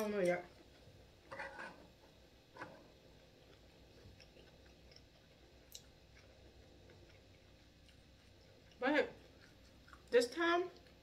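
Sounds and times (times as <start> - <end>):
person chewing food: 2.6 - 11.0.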